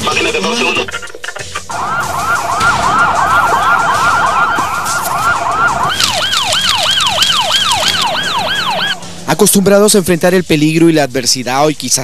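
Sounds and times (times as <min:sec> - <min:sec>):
fire engine siren yelping: 0:01.6 - 0:09.3.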